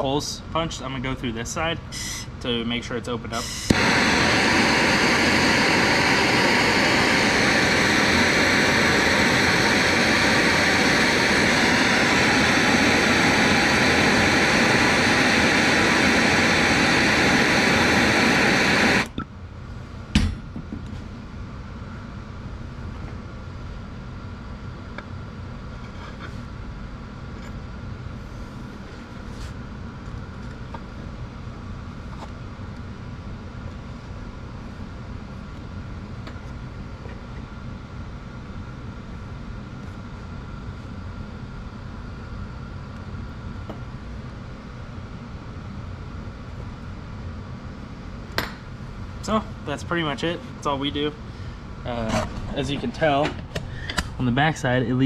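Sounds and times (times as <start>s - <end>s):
gas torch hissing: 1.9s - 19.1s.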